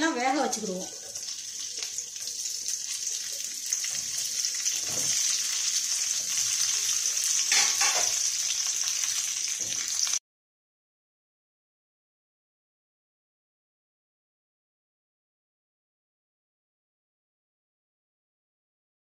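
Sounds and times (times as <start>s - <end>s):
vegetables sizzling in hot oil: 0.0s - 10.2s.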